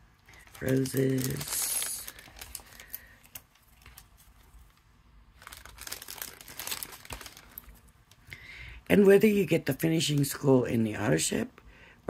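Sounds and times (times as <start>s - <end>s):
paper rustling: 0.3s - 4.8s, 5.4s - 7.9s.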